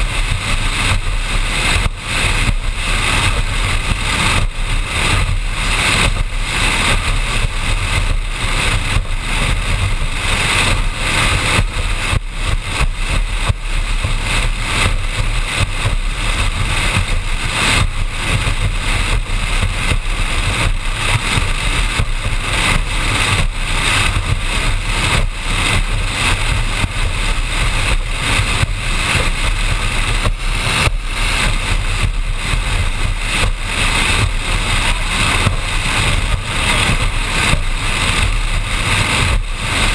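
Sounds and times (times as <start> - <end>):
powerboat engine at speed: 0.0 - 39.9
wind rushing: 0.0 - 39.9.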